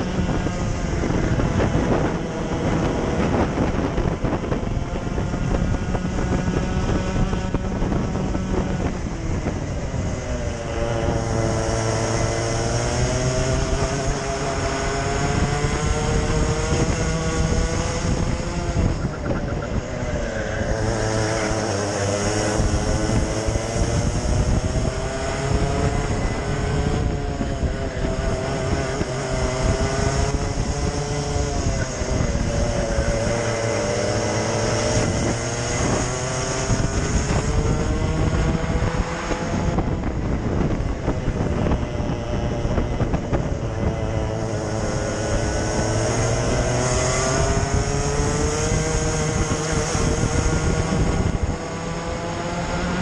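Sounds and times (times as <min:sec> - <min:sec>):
racing kart engine revving: 0:00.0 - 0:53.0
wind noise: 0:00.0 - 0:53.0.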